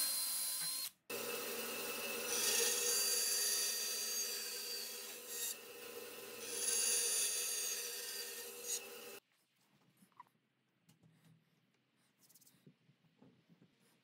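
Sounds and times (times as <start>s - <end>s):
bandsaw cutting wood: 1.1s - 9.2s.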